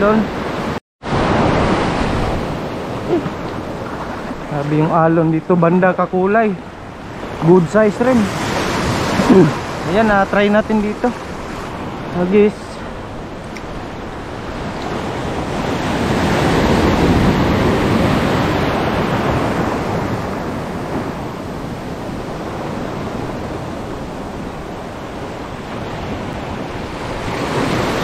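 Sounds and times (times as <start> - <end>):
sea surf washing in: 0.0 - 28.0
wind on microphone: 10.5 - 28.0.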